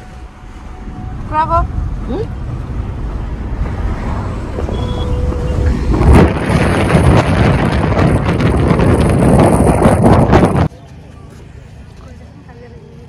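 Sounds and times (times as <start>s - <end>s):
car road noise: 0.0s - 13.0s
wind buffeting microphone: 1.7s - 10.7s.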